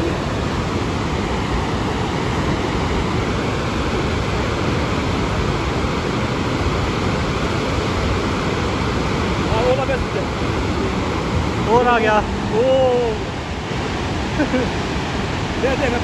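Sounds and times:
muddy stream rushing: 0:00.0 - 0:16.0.

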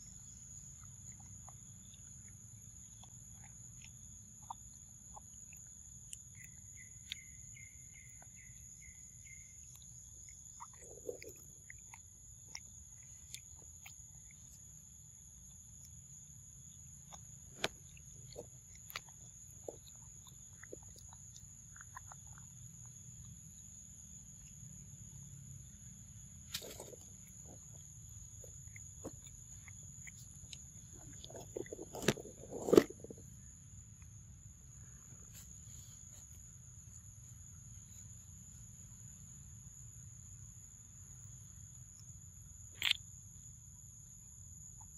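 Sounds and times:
insects droning: 0:00.0 - 0:44.9
monkey chewing fruit: 0:00.2 - 0:16.0, 0:16.6 - 0:24.8, 0:26.6 - 0:33.4.

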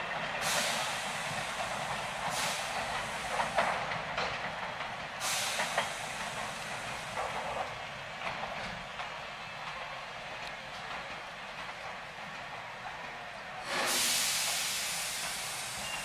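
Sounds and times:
wheels clacking over rail joints: 0:00.0 - 0:16.0
air hiss bursts: 0:00.4 - 0:03.8, 0:05.2 - 0:07.3, 0:13.6 - 0:16.0.

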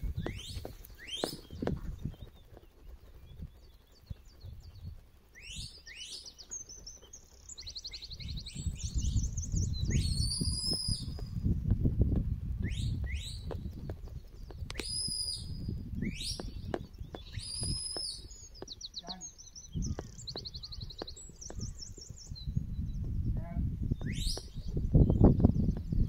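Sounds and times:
wind rumble on microphone: 0:00.0 - 0:26.0
shepherd's whistles: 0:09.8 - 0:11.2, 0:14.8 - 0:16.5, 0:24.0 - 0:24.5.

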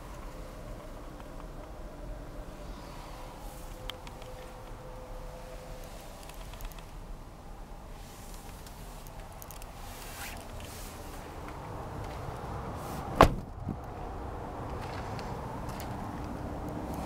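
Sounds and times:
handling rustle: 0:07.9 - 0:12.2
van door slamming: 0:13.1 - 0:13.8.

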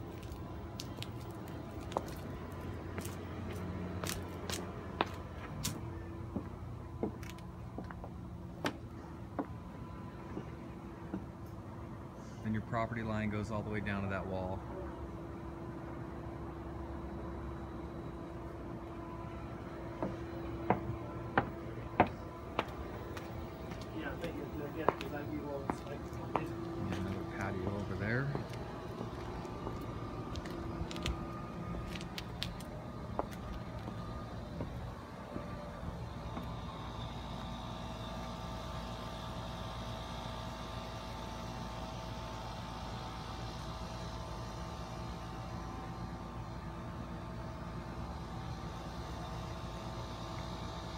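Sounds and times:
footsteps on concrete steps: 0:00.0 - 0:08.8, 0:20.0 - 0:34.8
steady low hum: 0:00.0 - 0:50.9.

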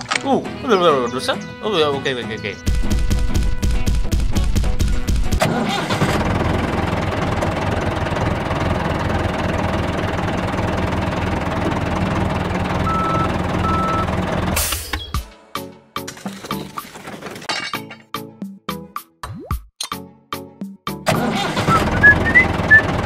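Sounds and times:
tractor engine chugging: 0:05.4 - 0:14.9, 0:21.1 - 0:23.0.

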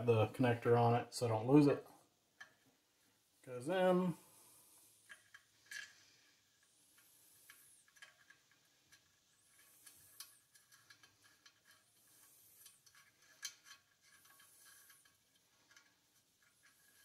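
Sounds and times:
faint ticks and clicks: 0:01.8 - 0:03.2, 0:04.2 - 0:17.0
soft rubbing: 0:04.1 - 0:17.0.

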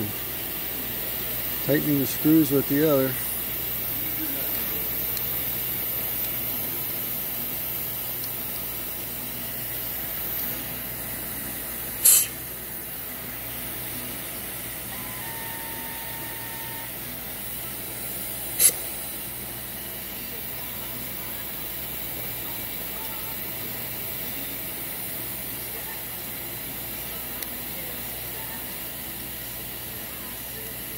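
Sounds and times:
compressed air hissing: 0:00.0 - 0:14.9, 0:15.7 - 0:25.3
loud air blasts: 0:11.8 - 0:12.6, 0:18.0 - 0:19.1.

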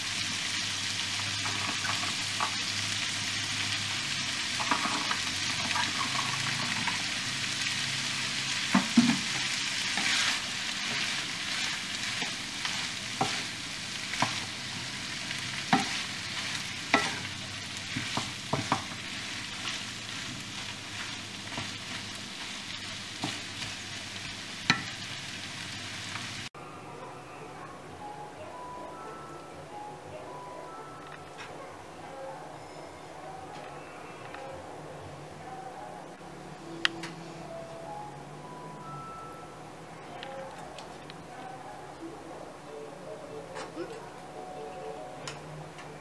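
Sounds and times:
meat sizzling in a frying pan: 0:00.0 - 0:26.5
spatula knocking and scraping pan: 0:17.9 - 0:19.0.

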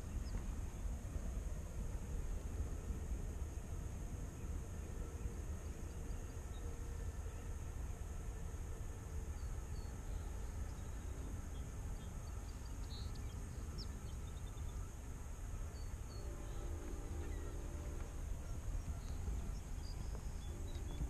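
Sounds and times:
faint hum: 0:00.0 - 0:21.0
steady high hiss: 0:00.0 - 0:21.0
faint bird chirps: 0:09.3 - 0:21.0
wind buffeting microphone: 0:10.2 - 0:21.0.

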